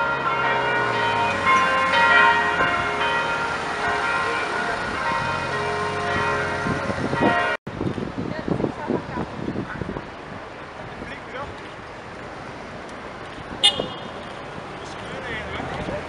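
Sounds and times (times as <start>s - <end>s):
bells ringing: 0.0s - 7.6s.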